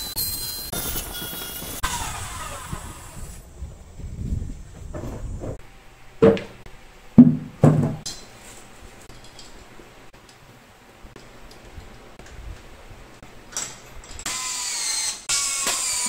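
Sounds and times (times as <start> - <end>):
wooden boards knocking on tile floor: 7.2 - 8.0.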